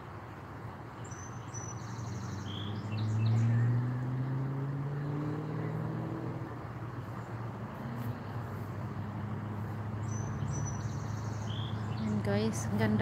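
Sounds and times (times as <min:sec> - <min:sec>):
outdoor background noise: 0:00.0 - 0:13.0
vehicle engine hum: 0:00.0 - 0:13.0
small bird chirping: 0:01.0 - 0:03.8, 0:10.0 - 0:12.7.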